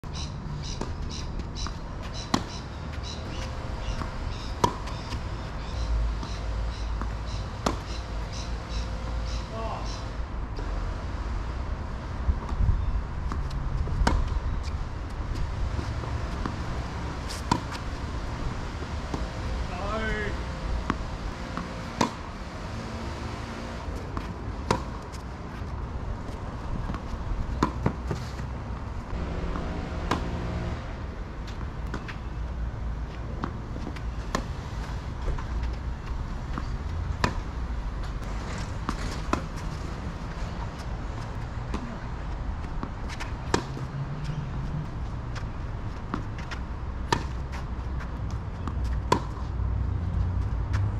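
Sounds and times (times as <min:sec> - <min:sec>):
tennis ball struck by rackets: 0:01.6 - 0:02.6, 0:03.2 - 0:05.3, 0:06.1 - 0:09.4, 0:13.3 - 0:14.4, 0:15.7 - 0:19.5, 0:20.8 - 0:22.3, 0:24.1 - 0:25.3, 0:26.8 - 0:28.2, 0:29.1 - 0:30.8, 0:33.3 - 0:37.6, 0:42.7 - 0:43.8, 0:46.1 - 0:47.6, 0:48.6 - 0:49.5.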